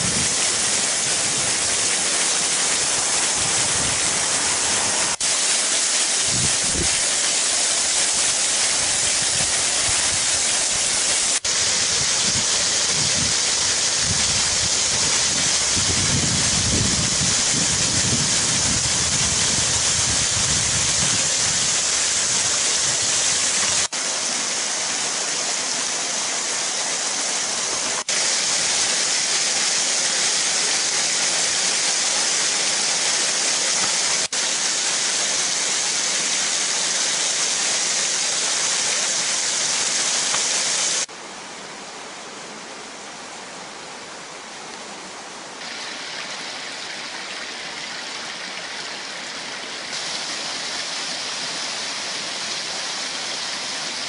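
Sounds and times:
waterfall rushing hiss: 0.0s - 54.0s
shallow river rapids: 22.4s - 54.0s.

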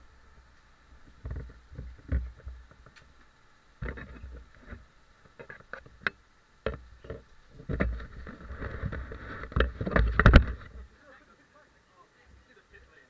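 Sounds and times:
camera handling knocks and rubbing: 6.6s - 10.8s.

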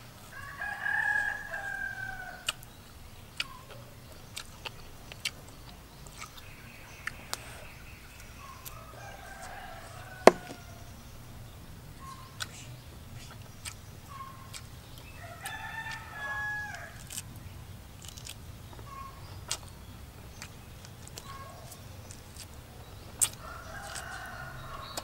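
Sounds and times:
rooster crowing: 0.3s - 2.4s, 8.8s - 10.8s, 15.2s - 17.0s.

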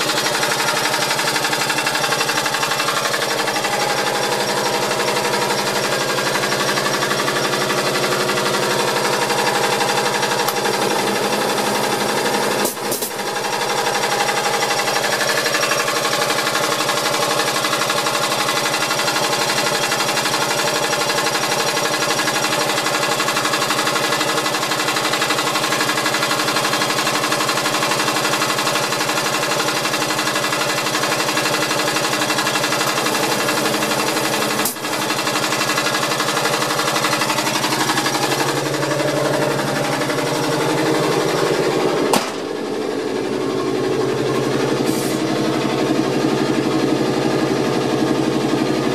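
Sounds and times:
air compressor rattling: 0.0s - 48.9s
sharp click: 42.1s - 42.5s.

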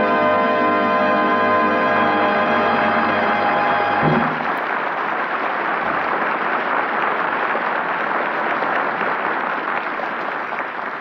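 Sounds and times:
studio audience applauding: 4.0s - 11.0s.

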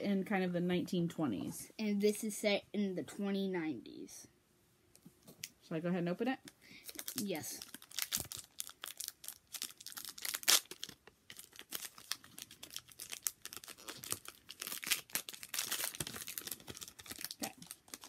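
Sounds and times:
foil wrapper tearing and crinkling: 6.9s - 18.0s.

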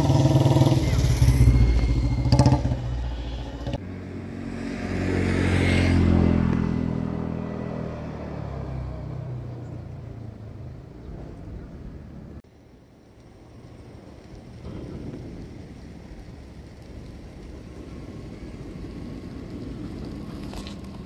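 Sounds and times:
vehicle passing: 0.0s - 12.2s.

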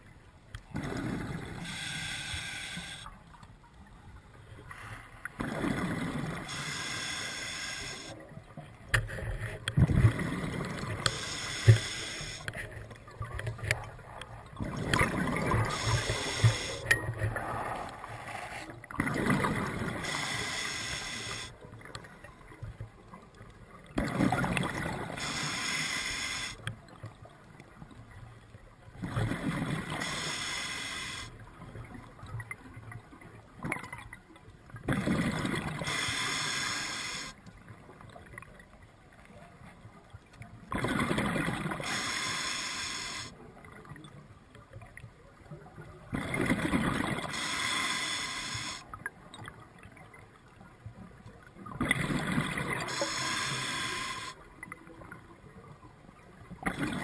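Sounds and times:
regulator inhalation: 1.6s - 3.1s, 6.5s - 8.1s, 11.0s - 12.5s, 15.6s - 16.8s, 20.0s - 21.5s, 25.2s - 26.6s, 30.0s - 31.3s, 35.8s - 37.3s, 41.8s - 43.3s, 47.3s - 48.8s, 52.9s - 54.4s.

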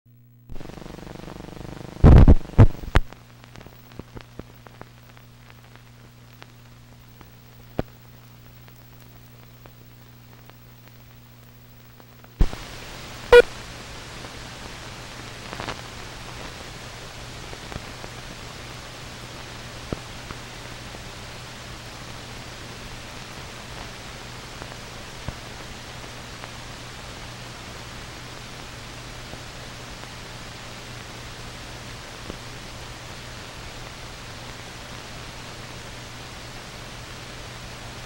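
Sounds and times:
steady low hum: 0.1s - 25.1s
film crackles and pops: 0.2s - 13.4s, 14.1s - 38.0s.

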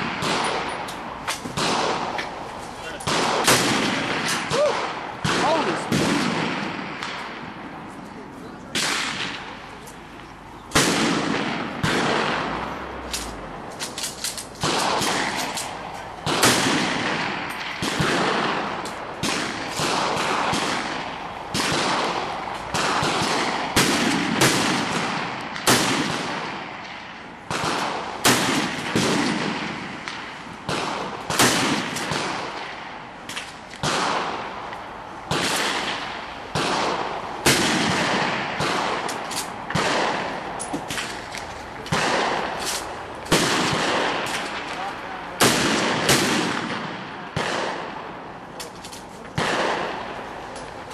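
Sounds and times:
rifle shots with long echo: 0.0s - 8.0s, 8.6s - 48.8s, 49.4s - 50.9s.

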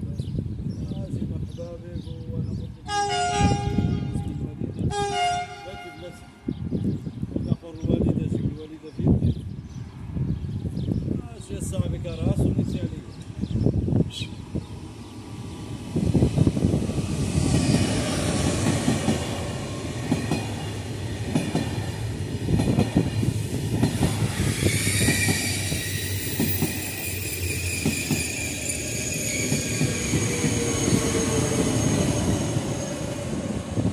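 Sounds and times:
train wheels rumbling and clattering: 15.2s - 33.9s.

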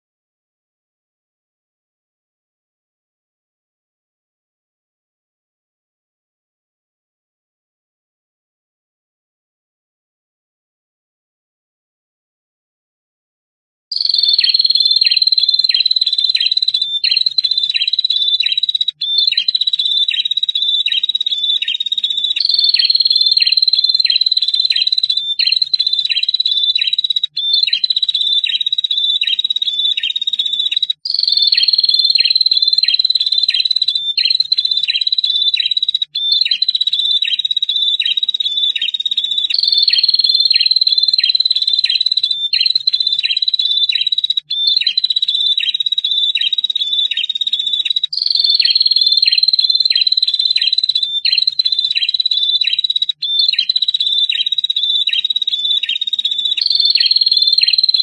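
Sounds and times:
bird trilling song: 13.9s - 58.0s.

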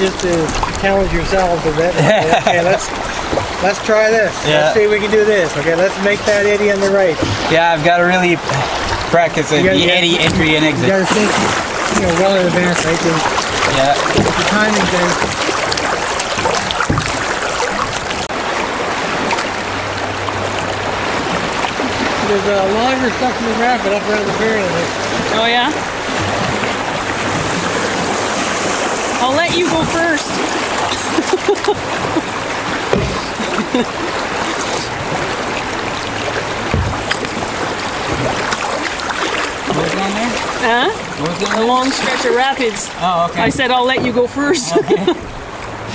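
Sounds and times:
low thumps on canoe: 0.0s - 4.2s, 5.6s - 18.4s, 24.1s - 42.6s, 43.3s - 44.4s
paddle splashes: 0.0s - 45.9s
river water rushing: 0.0s - 45.9s.

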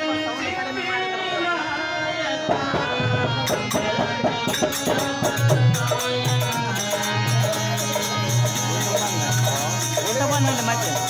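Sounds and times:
jingling hand percussion: 2.5s - 11.0s.

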